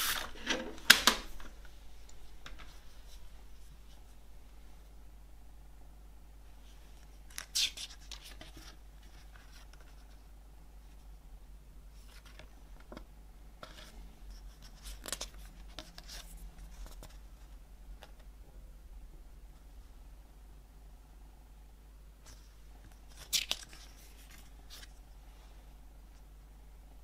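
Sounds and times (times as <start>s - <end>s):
paper pages rustling: 12.0s - 17.2s, 22.3s - 25.0s.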